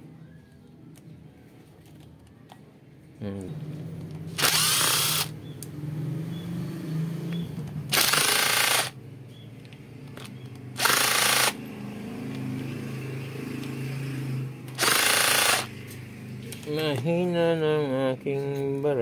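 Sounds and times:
impact driver bursts: 4.4s - 5.3s, 7.9s - 9.0s, 10.8s - 11.6s, 14.8s - 15.7s.

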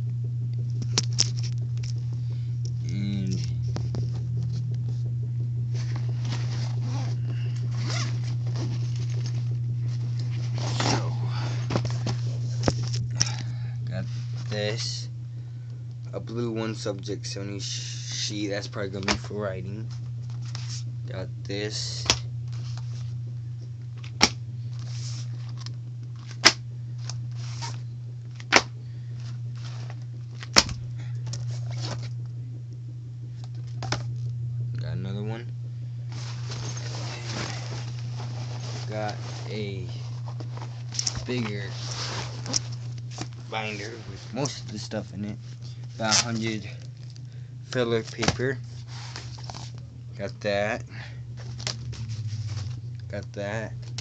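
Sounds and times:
steady low hum: 0.0s - 54.0s
backpack rustling and scraping: 5.7s - 13.0s, 24.7s - 26.3s, 27.3s - 27.8s, 29.2s - 30.4s, 31.4s - 32.1s, 36.1s - 44.7s, 48.0s - 49.8s, 51.4s - 52.8s
paper rustling: 36.1s - 44.7s, 48.0s - 49.8s.

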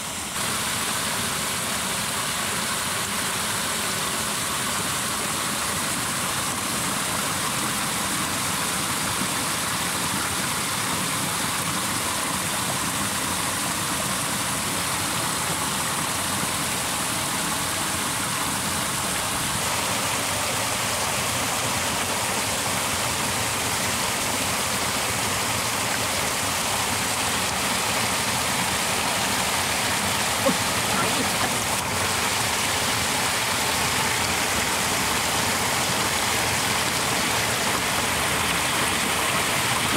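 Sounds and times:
muddy water pouring into pool: 0.1s - 39.9s.

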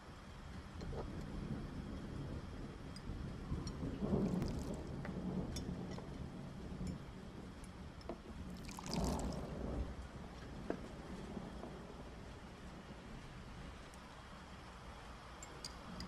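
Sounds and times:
tea trickling into cup: 4.2s - 4.8s, 8.5s - 9.5s.

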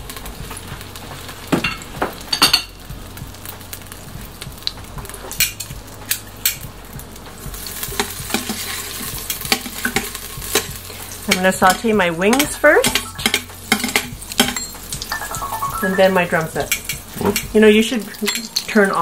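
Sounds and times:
butter sizzling in hot oil: 0.0s - 19.0s
metal tongs clinking against pot: 8.0s - 10.7s, 11.3s - 19.0s.

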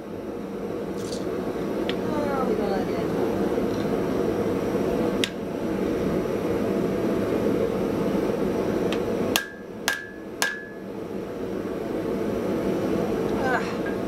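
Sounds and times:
steady noisy background: 0.0s - 14.0s
hammer striking metal on anvil: 9.3s - 10.8s.

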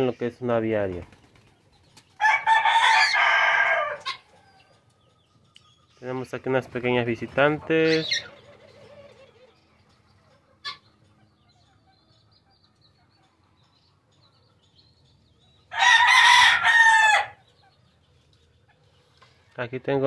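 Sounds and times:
faint bird chirp: 4.0s - 7.0s, 7.8s - 15.8s, 17.4s - 20.0s.

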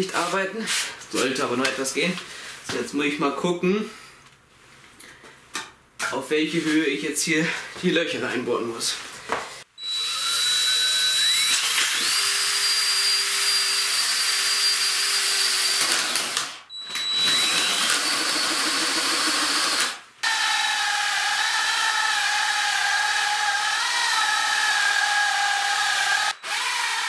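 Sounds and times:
drill boring through wood: 9.8s - 27.0s.

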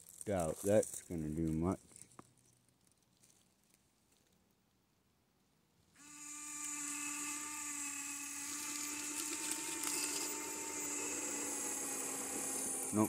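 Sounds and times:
electric motor and gears whining: 6.0s - 13.0s.

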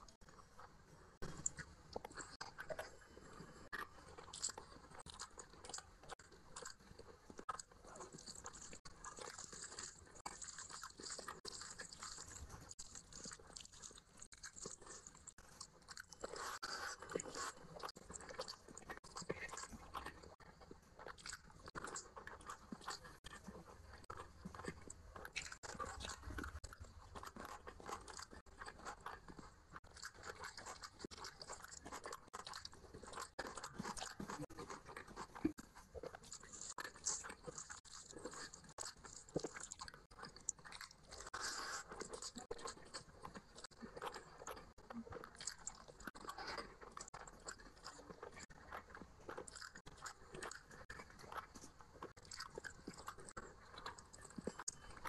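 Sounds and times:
person chewing: 1.2s - 55.0s.

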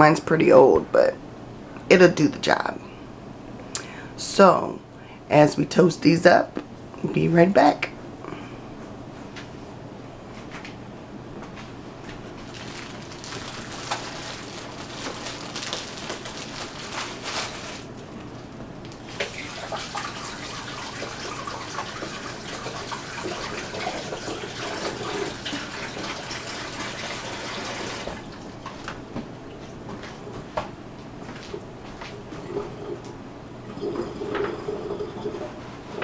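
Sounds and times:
plastic bag crinkling: 12.4s - 18.1s.

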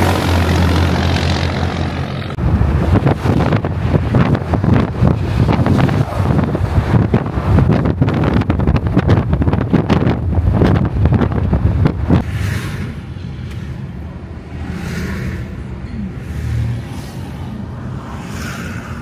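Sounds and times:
wind buffeting microphone: 0.0s - 14.7s
cars passing on highway: 0.0s - 19.0s.

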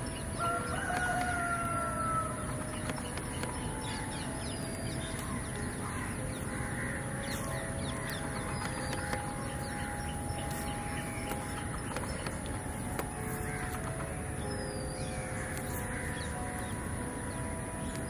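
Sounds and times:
steady background noise: 0.0s - 18.0s
crows cawing: 0.4s - 2.9s, 5.0s - 17.4s.

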